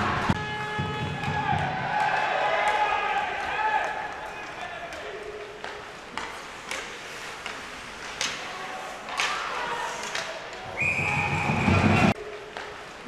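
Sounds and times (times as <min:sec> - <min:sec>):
hockey sticks clacking on puck: 0:01.0 - 0:11.2.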